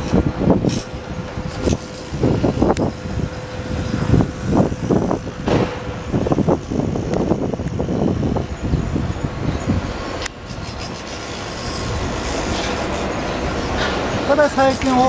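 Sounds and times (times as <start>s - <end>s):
passing traffic rumble: 0.0s - 15.0s.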